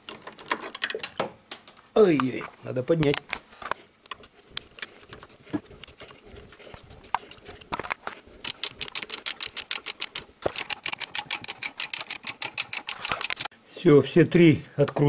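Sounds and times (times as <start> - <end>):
ratchet wrench clicking: 8.4 - 13.5.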